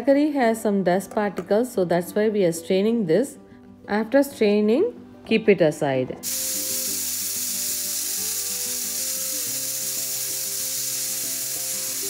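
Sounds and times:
soft background music: 0.0s - 12.0s
pressure cooker hissing steam: 6.2s - 12.0s.

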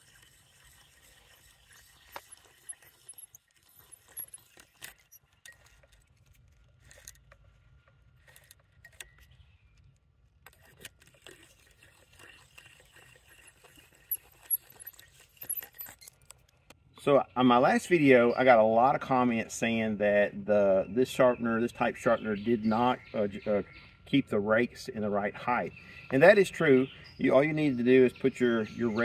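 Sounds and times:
file scraping chain teeth: 1.7s - 7.3s, 10.5s - 16.5s
chain links clinking: 14.4s - 16.3s.

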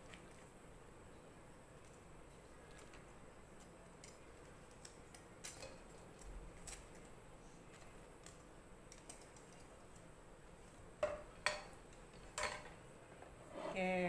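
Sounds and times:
metal tongs clicking on wire strainer: 4.0s - 6.0s.

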